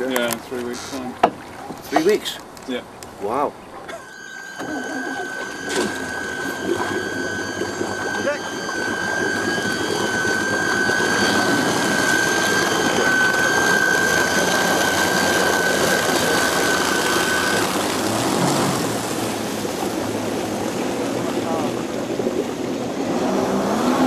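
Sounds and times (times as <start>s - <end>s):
high electric motor whine: 3.9s - 22.3s
rushing water and spray: 4.6s - 24.0s.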